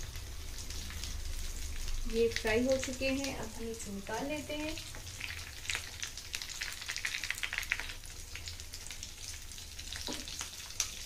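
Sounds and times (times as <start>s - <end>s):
food deep-frying in hot oil: 0.0s - 11.0s.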